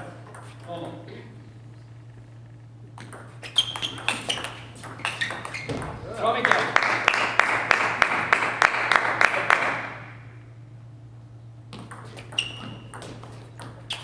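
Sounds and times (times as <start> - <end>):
table tennis ball clicks: 3.0 - 5.7
spectators clapping in rhythm: 6.4 - 10.0.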